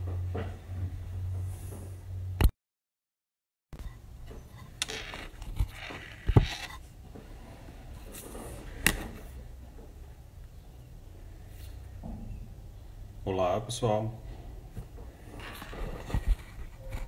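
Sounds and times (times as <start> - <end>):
microphone rubbing: 4.9 - 6.9, 15.2 - 17.0.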